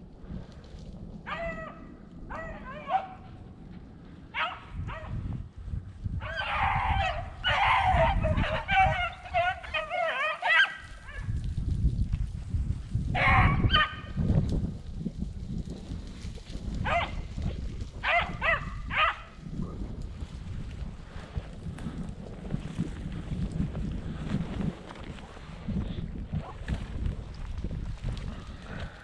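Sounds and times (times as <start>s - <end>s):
wind rumble on microphone: 0.0s - 29.0s
dogs baying: 6.3s - 11.2s.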